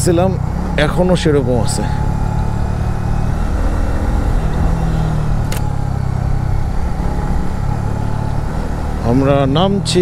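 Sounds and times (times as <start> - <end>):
motorcycle engine running: 0.0 - 10.0
wind and road noise: 0.0 - 10.0
sharp click: 5.4 - 5.7.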